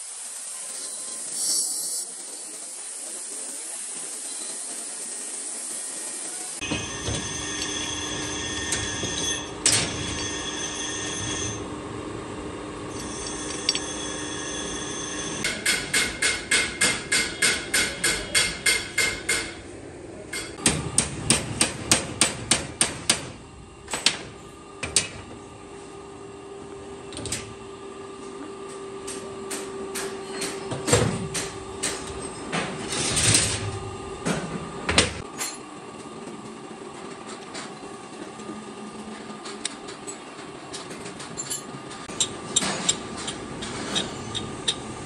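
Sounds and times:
bench grinder whine: 4.1 - 15.5.

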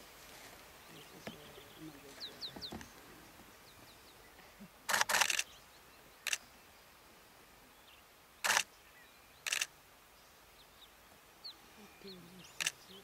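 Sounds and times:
camera shutters clicking: 4.9 - 5.5, 8.4 - 8.7, 9.5 - 9.7
faint bird chirps: 7.6 - 13.0.

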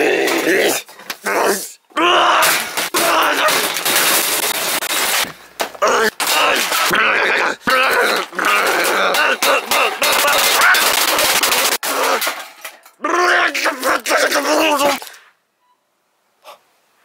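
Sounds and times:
person talking and exclaiming: 13.0 - 15.2.

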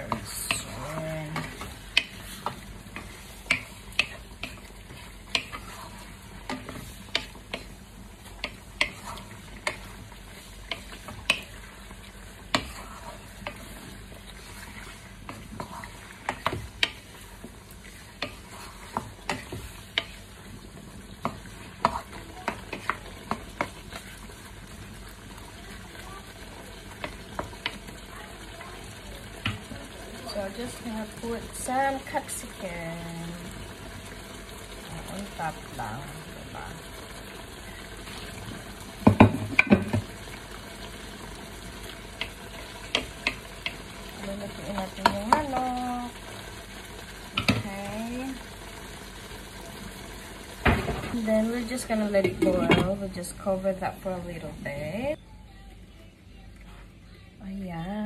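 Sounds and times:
wooden spoon scraping a wok: 0.0 - 24.8
food sizzling in a pan: 0.0 - 55.2.

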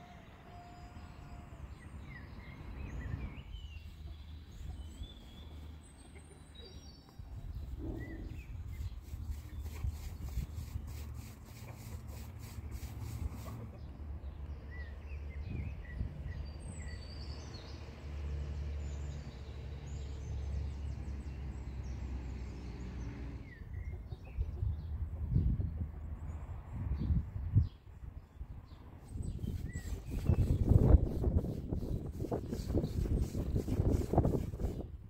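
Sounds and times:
small birds chirping: 1.7 - 18.0, 27.0 - 35.0.

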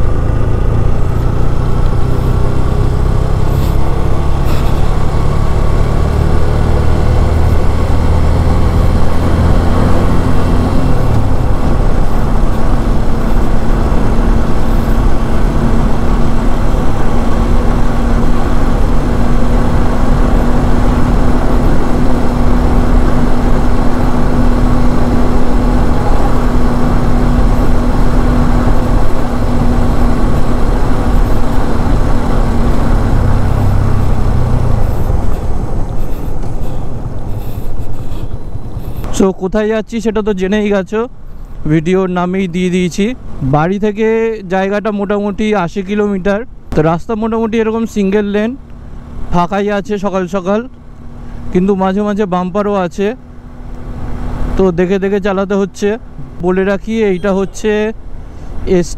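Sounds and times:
motorcycle engine running: 0.0 - 39.1
wind rushing over microphone: 0.0 - 39.2.

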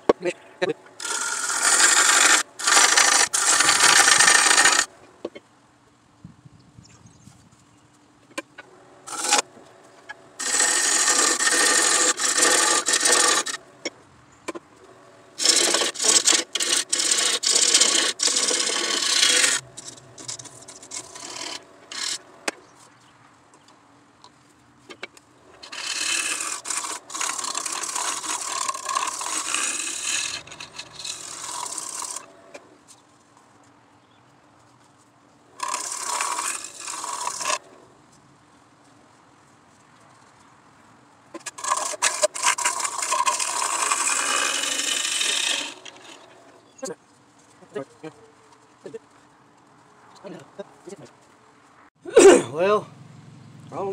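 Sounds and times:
sanding wood on a lathe: 1.0 - 4.9, 9.1 - 13.7, 15.4 - 22.4, 25.6 - 32.6, 35.6 - 37.8, 41.4 - 46.6.

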